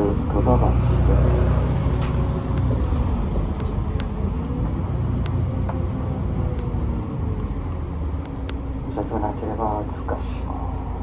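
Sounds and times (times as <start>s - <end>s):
bus diesel engine: 0.0s - 11.0s
road rumble: 0.0s - 11.0s.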